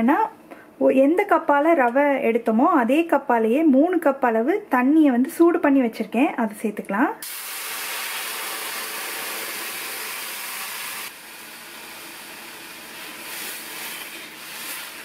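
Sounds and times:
bubbling mixture sizzling: 7.2s - 15.0s
hot water hissing in a hot pan: 7.2s - 15.0s.

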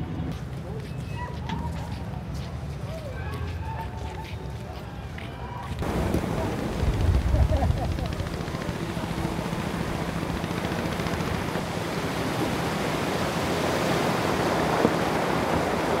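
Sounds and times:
steady rushing noise: 5.8s - 16.0s.

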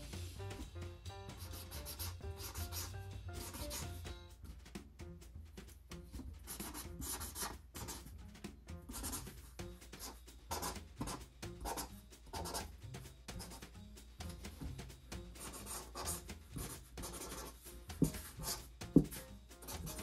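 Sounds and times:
faint background music: 0.0s - 20.0s
marker scratching on cardboard: 1.3s - 4.1s, 6.1s - 8.1s, 8.8s - 20.0s.

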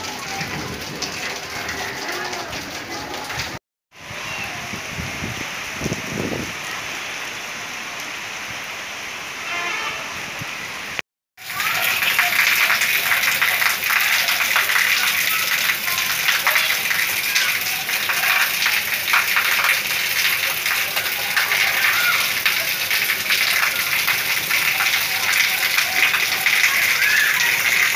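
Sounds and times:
rain pattering: 0.0s - 27.9s.

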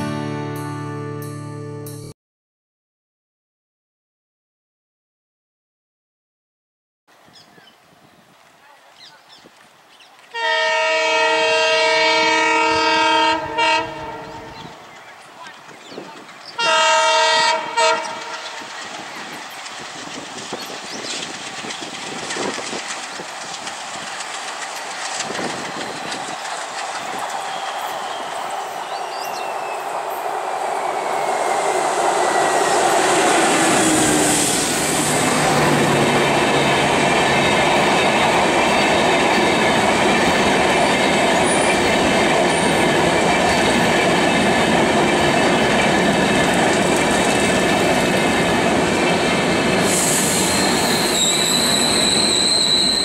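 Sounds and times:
diesel locomotive passing: 10.2s - 53.0s
train wheel clatter: 18.0s - 29.7s, 32.4s - 53.0s
wheels squealing: 49.0s - 53.0s.

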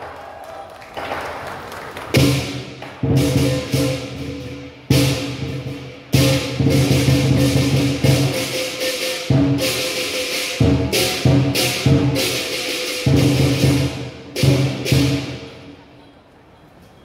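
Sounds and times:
large drum beating: 2.2s - 9.9s
cymbal crashes: 2.2s - 15.6s.

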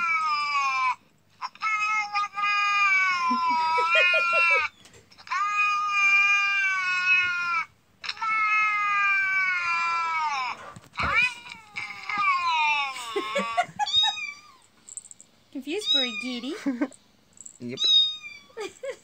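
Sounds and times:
recorded cat yowling from speaker: 0.0s - 14.6s.

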